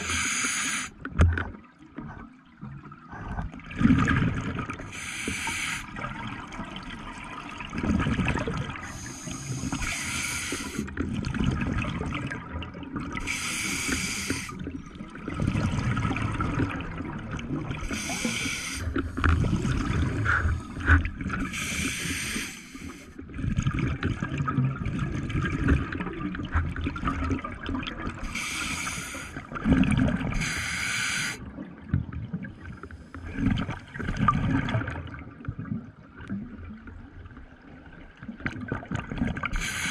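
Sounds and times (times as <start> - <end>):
regulator breath hiss: 0.0 - 0.9, 4.9 - 5.9, 8.8 - 10.8, 13.3 - 14.6, 17.8 - 19.0, 21.5 - 23.2, 28.3 - 29.4, 30.4 - 31.4, 39.6 - 39.9
exhaled bubbles gurgling: 0.0 - 39.9.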